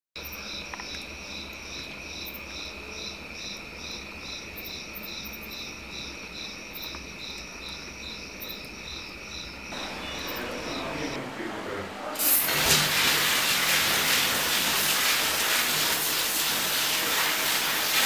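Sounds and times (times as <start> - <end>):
insects chirping: 0.2 - 14.5
high-pitched drone: 9.8 - 11.4.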